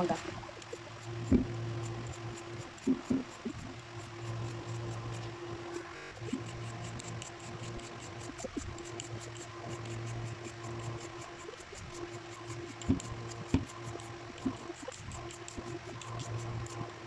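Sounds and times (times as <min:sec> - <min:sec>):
peeler scraping mango flesh: 0:00.7 - 0:16.9.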